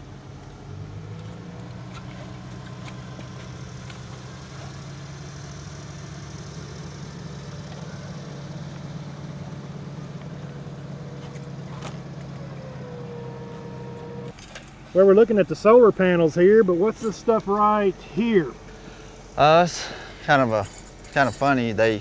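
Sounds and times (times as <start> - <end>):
diesel engine idling: 0.0 - 22.0
faint metallic clinks: 20.5 - 21.8.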